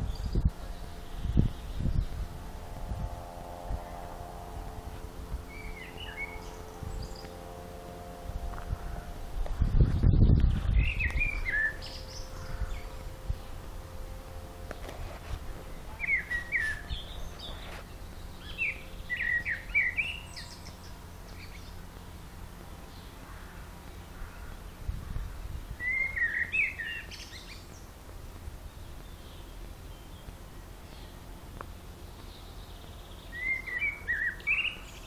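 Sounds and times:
low rumble: 0:00.0 - 0:26.0
songbird singing: 0:00.0 - 0:35.0.

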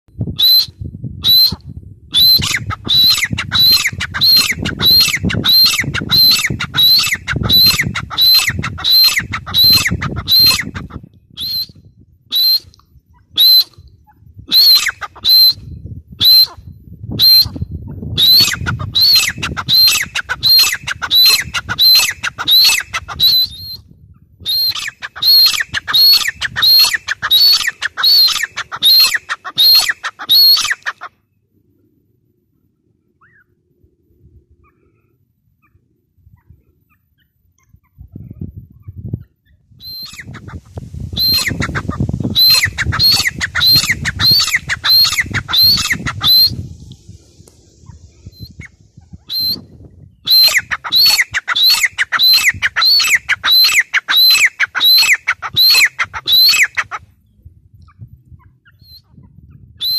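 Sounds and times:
bird calling high sharp notes: 0:02.2 - 0:10.8, 0:24.6 - 0:30.9, 0:41.1 - 0:49.6, 0:50.3 - 0:56.8.

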